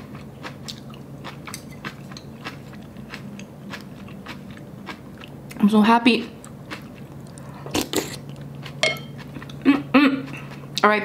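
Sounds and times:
crunchy chewing: 0.0s - 5.6s.

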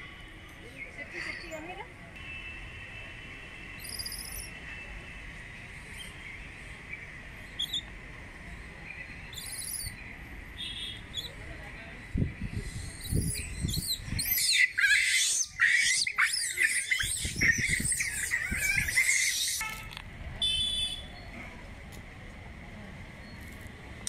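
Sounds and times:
high chirping animal calls: 9.3s - 10.0s, 12.7s - 19.6s.

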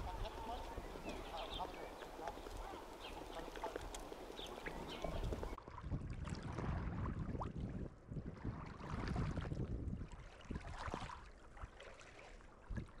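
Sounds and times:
waves lapping against stones: 0.0s - 7.6s
wind rumbling on microphone: 0.0s - 13.0s.

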